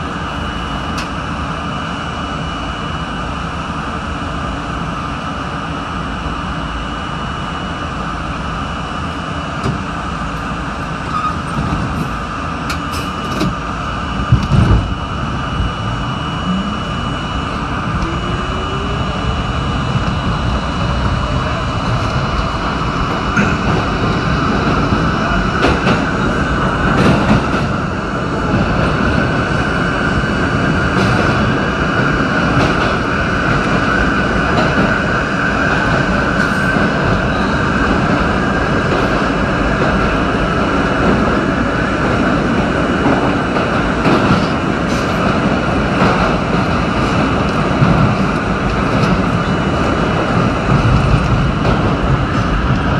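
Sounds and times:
subway train motor whine: 0:00.0 - 0:52.9
wheel and rail rumble: 0:00.0 - 0:52.9
sharp knocks of train: 0:09.0 - 0:52.9.

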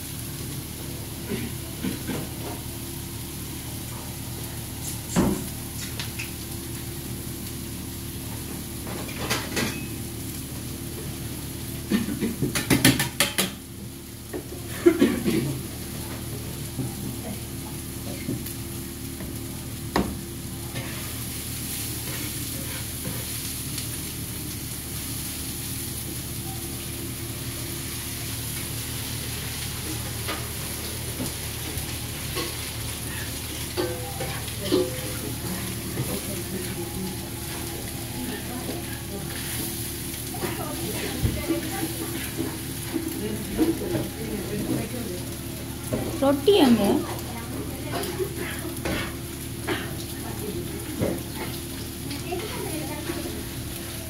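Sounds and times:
vegetables sizzling on a griddle: 0:00.0 - 0:54.0
spatula and pans clanking: 0:08.9 - 0:10.0, 0:11.9 - 0:13.6, 0:32.3 - 0:36.3.

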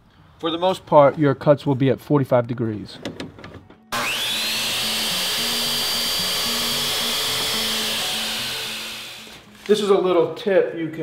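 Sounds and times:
miter saw motor whine: 0:03.9 - 0:09.4.

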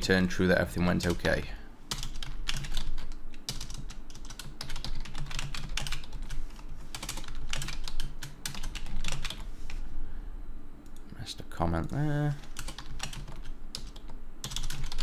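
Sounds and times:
low steady hum: 0:00.0 - 0:15.0
keyboard typing: 0:01.9 - 0:09.8, 0:12.4 - 0:15.0.

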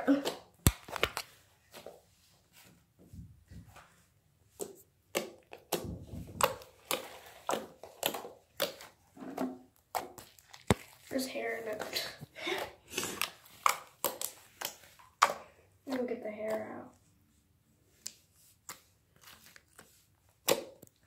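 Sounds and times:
slime clicking: 0:13.2 - 0:15.4.

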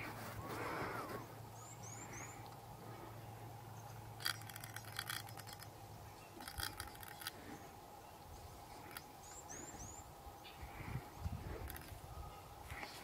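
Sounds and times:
faint low hum: 0:00.0 - 0:13.0
rapid light clicks: 0:04.2 - 0:05.8, 0:06.4 - 0:07.4.

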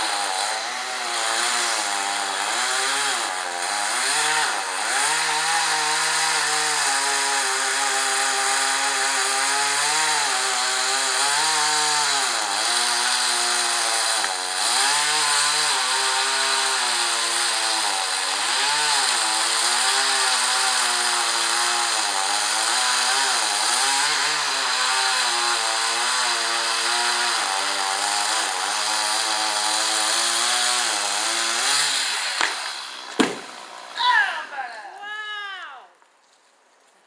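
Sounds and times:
chainsaw cutting tree trunk: 0:00.0 - 0:34.0
tree trunk hitting ground: 0:32.3 - 0:33.7.

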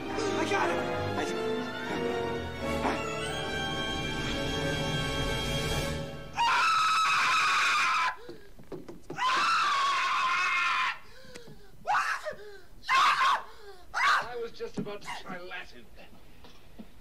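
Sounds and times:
film score music: 0:00.0 - 0:06.9
man screaming in terror: 0:06.4 - 0:08.2, 0:09.2 - 0:11.0, 0:11.9 - 0:14.3.

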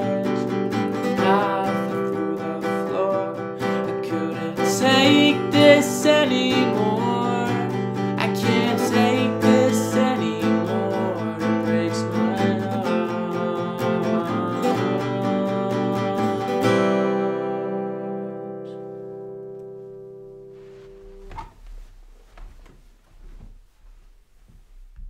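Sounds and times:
person singing wordlessly: 0:00.0 - 0:17.6
acoustic guitar strumming: 0:00.0 - 0:22.7.

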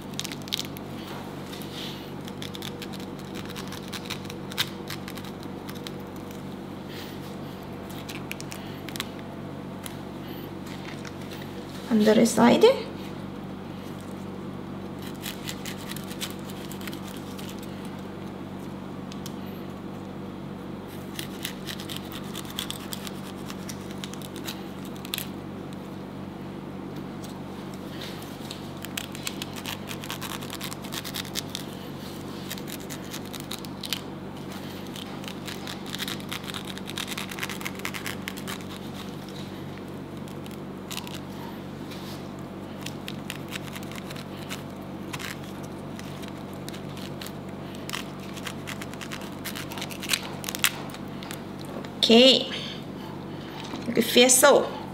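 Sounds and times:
knife cutting and scraping pineapple: 0:15.0 - 0:18.0, 0:21.0 - 0:25.3, 0:28.2 - 0:51.4.

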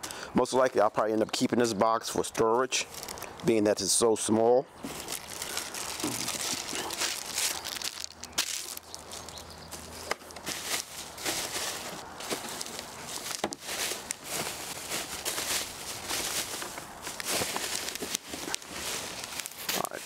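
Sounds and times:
plastic wrap crinkling: 0:02.9 - 0:03.5, 0:04.8 - 0:20.0.

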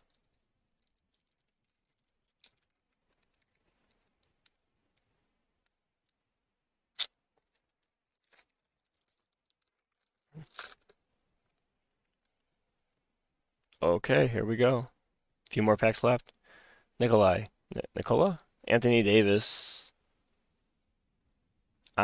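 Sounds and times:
foil wrapper crinkling and tearing: 0:00.0 - 0:04.0, 0:07.0 - 0:11.0.

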